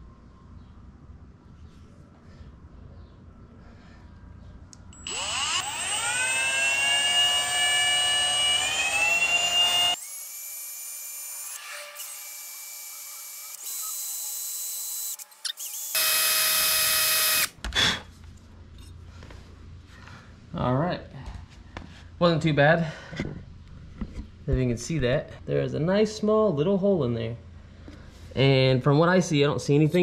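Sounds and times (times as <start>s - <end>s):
cordless drill whine: 4.9s - 17.5s.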